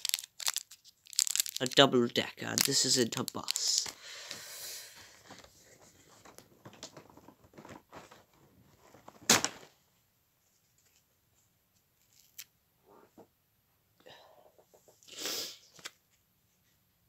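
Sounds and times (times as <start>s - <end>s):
plastic wrapper rustling: 0.0s - 4.4s, 5.1s - 9.7s.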